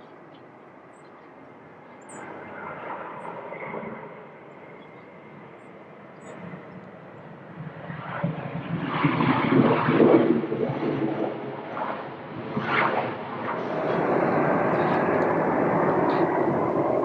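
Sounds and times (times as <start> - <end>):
distant jet engines rushing: 0.0 - 17.0.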